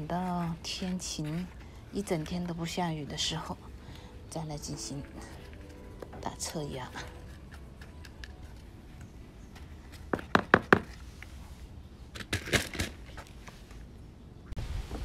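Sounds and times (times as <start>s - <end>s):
rustle: 14.6s - 15.0s.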